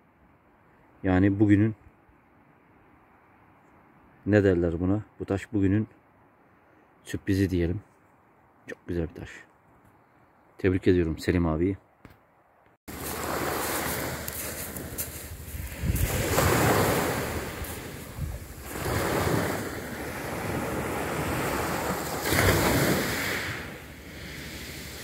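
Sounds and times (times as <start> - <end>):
waves breaking on pebble beach: 12.9 - 25.0.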